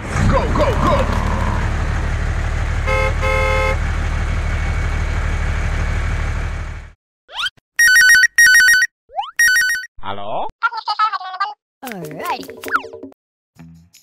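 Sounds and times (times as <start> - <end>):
tractor engine running: 0.0 - 7.0
horn toots: 2.8 - 3.8
warbling phone ringtone: 7.8 - 9.9.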